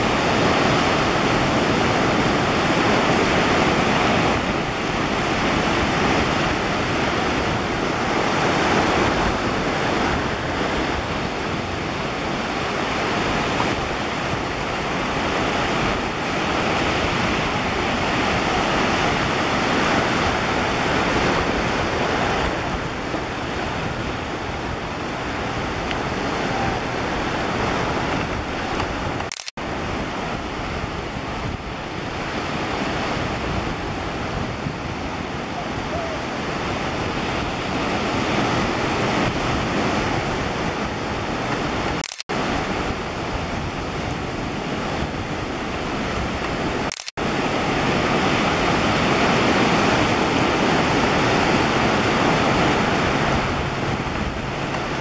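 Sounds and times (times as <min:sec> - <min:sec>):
surf washing against rocky shore: 0:00.0 - 0:55.0.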